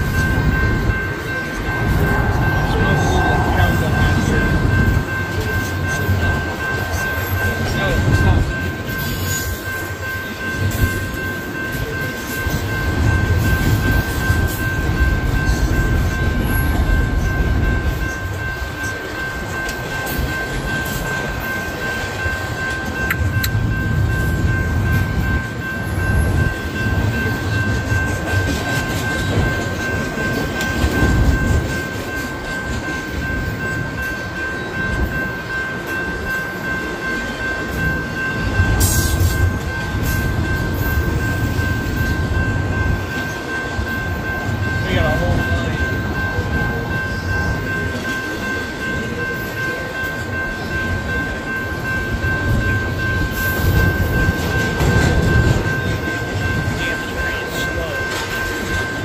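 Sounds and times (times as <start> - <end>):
freight train rumbling and clattering: 0.0 - 59.0
steady high tone: 0.0 - 59.0.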